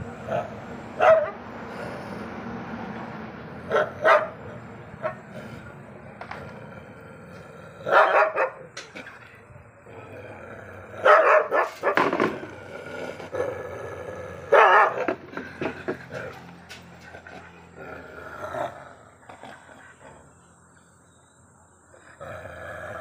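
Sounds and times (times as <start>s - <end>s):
dog barking: 1.0s - 1.4s, 3.7s - 4.4s, 7.9s - 8.7s, 11.0s - 12.1s, 14.5s - 15.1s.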